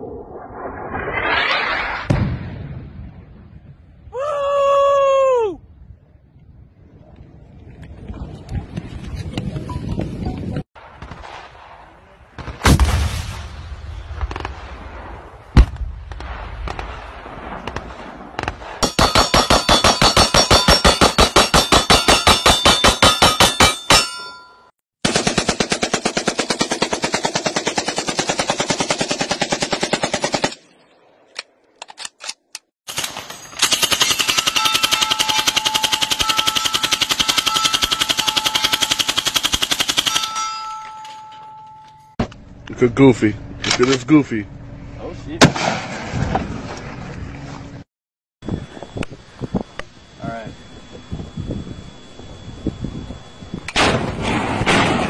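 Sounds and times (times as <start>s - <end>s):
rocket launcher blast: 0.0s - 3.9s, 10.8s - 18.8s, 45.4s - 46.6s, 53.6s - 55.0s
sharp gun bang: 1.1s - 3.2s, 10.9s - 24.2s, 45.4s - 46.4s, 53.7s - 55.0s
single gunshots: 10.8s - 20.0s, 45.4s - 46.4s.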